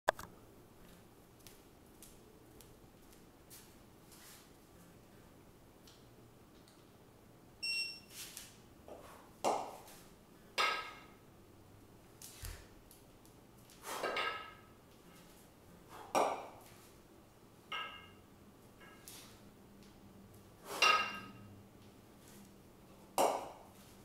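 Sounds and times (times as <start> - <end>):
kettlebells clinking: 17.7 - 18.2, 20.7 - 21.4.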